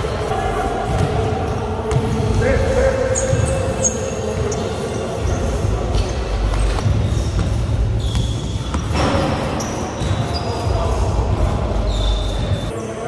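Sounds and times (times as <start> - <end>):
sneaker squeaks on floor: 3.0 - 11.0, 11.7 - 12.8.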